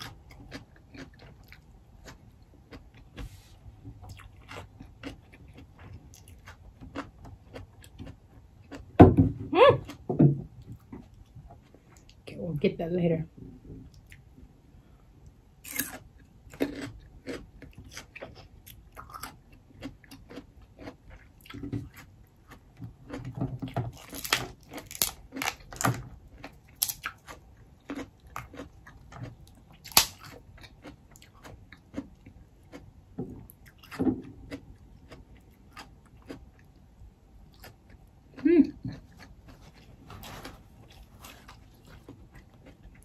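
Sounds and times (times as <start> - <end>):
wet chewing and crunching: 0.0 - 9.0, 13.8 - 14.4, 15.2 - 43.0
crab shells cracking: 24.0 - 26.0, 26.8 - 27.1, 29.8 - 30.5.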